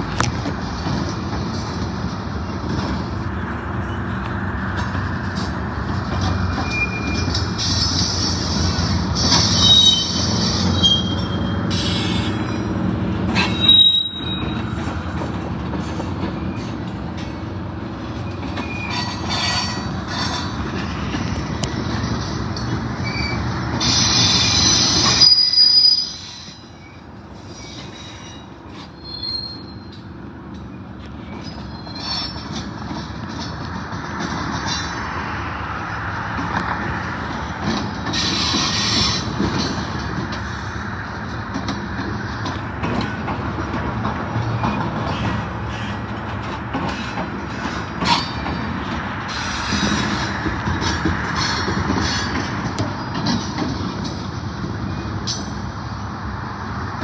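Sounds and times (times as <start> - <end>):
freight train rumbling: 0.0 - 57.0
high-pitched wheel squeals: 6.5 - 14.9, 18.2 - 20.6, 23.0 - 30.0, 30.7 - 32.6.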